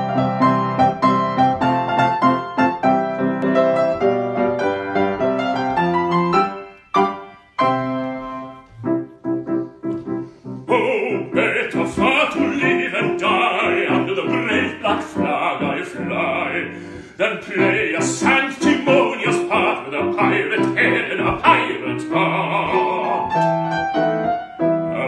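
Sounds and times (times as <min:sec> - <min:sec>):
grand piano playing: 0:00.0 - 0:25.0
baritone singing operatically: 0:10.6 - 0:25.0.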